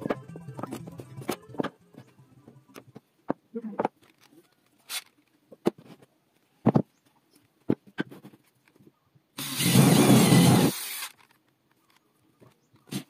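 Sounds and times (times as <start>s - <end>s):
electric drill boring into wood: 9.4s - 11.2s.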